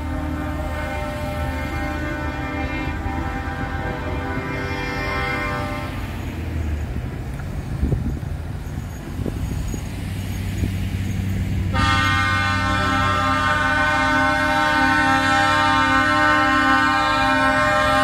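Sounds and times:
truck air horn chord: 0.0 - 6.1, 11.7 - 18.0
truck engines rumbling: 0.0 - 18.0.

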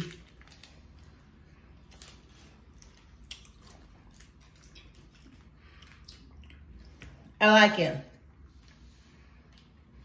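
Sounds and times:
mouth clicks and smacks: 3.2 - 7.2.

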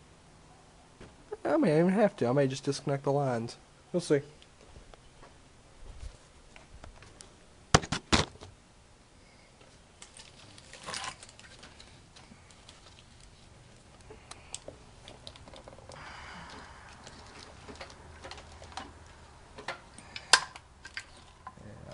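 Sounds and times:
light ticks and handling noises: 9.6 - 21.9.

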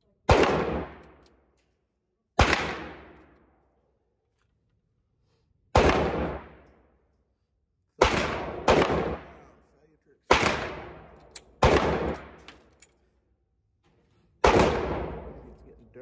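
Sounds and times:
pistol shots echoing indoors: 0.2 - 3.9, 5.7 - 6.8, 7.9 - 9.6, 10.3 - 13.0, 14.4 - 15.7.

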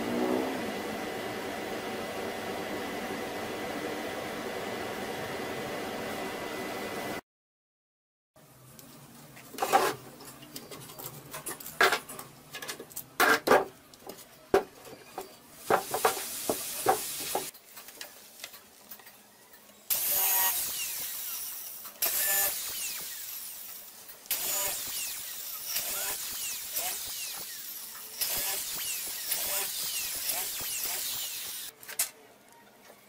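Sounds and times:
cordless drill boring into wood: 19.9 - 31.7.

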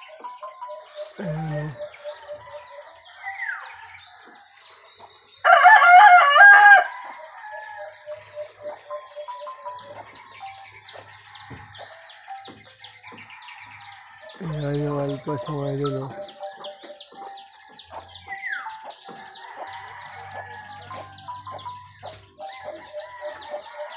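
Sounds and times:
small birds twittering: 0.0 - 23.9
rooster crowing: 1.2 - 4.7, 5.4 - 8.6, 13.0 - 16.2, 17.6 - 21.7, 22.5 - 23.9.

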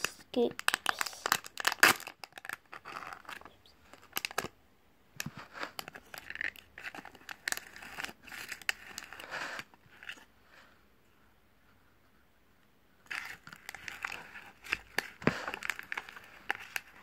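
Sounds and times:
plastic bag crinkling: 0.0 - 4.5, 13.1 - 17.0.

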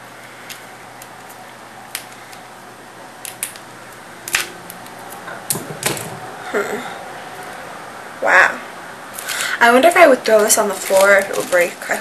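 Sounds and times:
plastic packaging crackling: 9.2 - 12.0.

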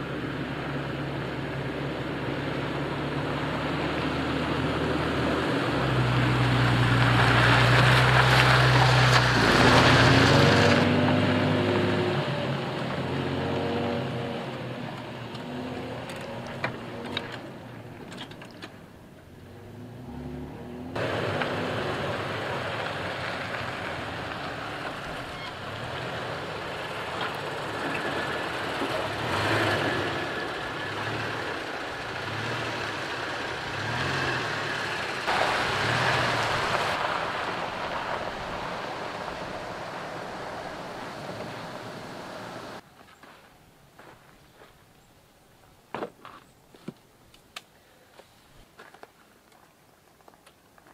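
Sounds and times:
tyres on dirt and gravel: 0.0 - 50.9
rough rush of noise: 19.7 - 42.8
pickup engine running: 21.0 - 42.8.

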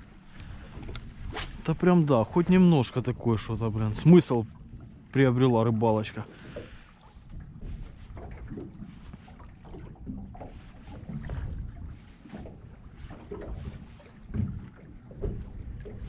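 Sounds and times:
light knocks from boat: 0.0 - 2.6, 6.4 - 16.0
water lapping against boat: 0.0 - 16.0.

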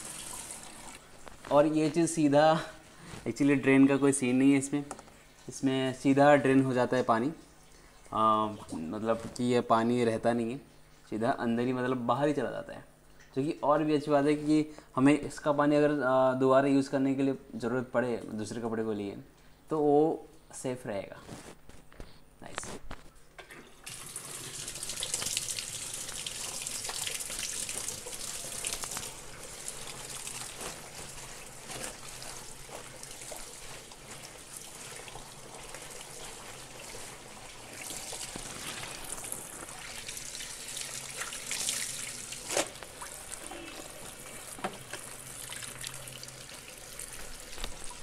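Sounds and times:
water running into plastic tub: 0.0 - 5.6, 23.4 - 48.0
wet clothes being pushed: 28.5 - 45.8.

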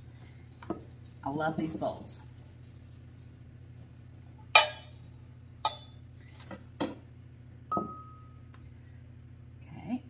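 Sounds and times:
bowls and kitchenware clinking: 4.6 - 5.0, 5.6 - 6.0.

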